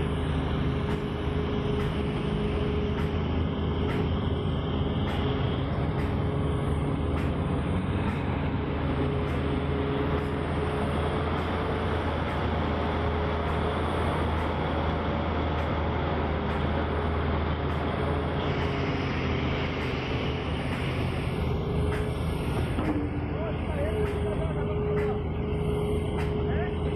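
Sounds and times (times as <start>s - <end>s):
excavator diesel engine drone: 0.0s - 26.9s.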